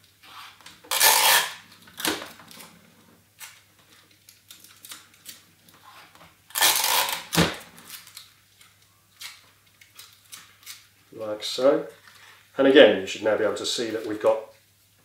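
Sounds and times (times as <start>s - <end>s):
tape ripping off dispenser: 0.2s - 2.7s, 6.0s - 10.9s.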